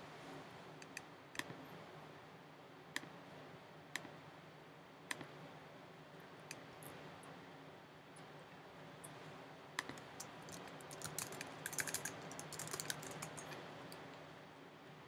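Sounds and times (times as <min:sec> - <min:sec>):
faint computer clicks: 0:00.8 - 0:01.6, 0:09.8 - 0:14.2.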